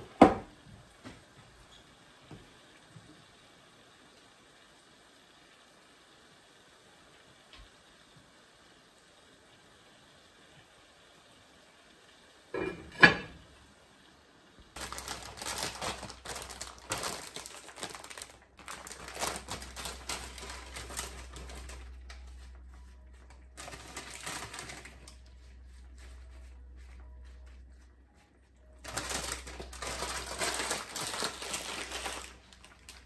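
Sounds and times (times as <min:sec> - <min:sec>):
pan lid clanking on skillet: 0:12.6 - 0:13.4
plastic bag crinkling: 0:14.8 - 0:22.5, 0:23.3 - 0:25.2, 0:28.8 - 0:33.0.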